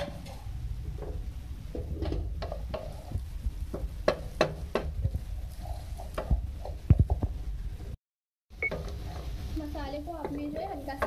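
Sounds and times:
wooden spatula scraping a pan: 1.1s - 6.9s, 8.7s - 11.0s.

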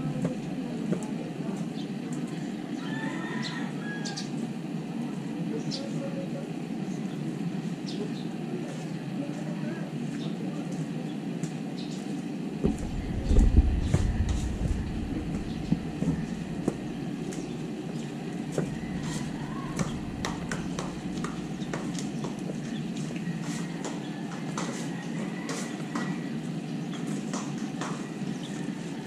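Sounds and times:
steady background hum: 0.0s - 29.0s
deep rumble: 12.6s - 23.4s.

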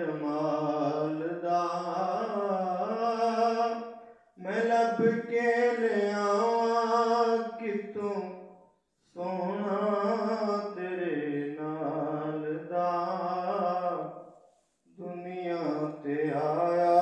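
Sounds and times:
man singing unaccompanied: 0.0s - 8.4s, 9.2s - 14.1s, 15.0s - 17.0s.

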